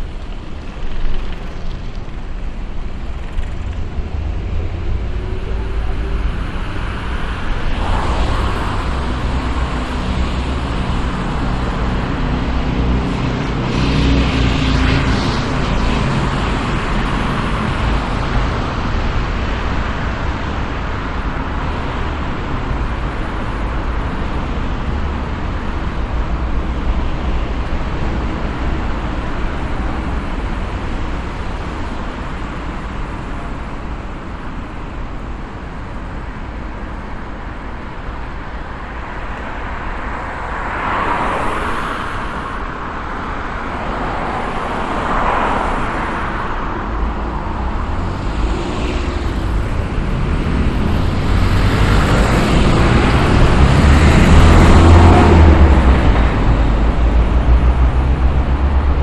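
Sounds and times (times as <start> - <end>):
cars passing: 0.0 - 59.0
heavy vehicle rumble: 0.0 - 59.0
hum of vehicles: 0.0 - 59.0.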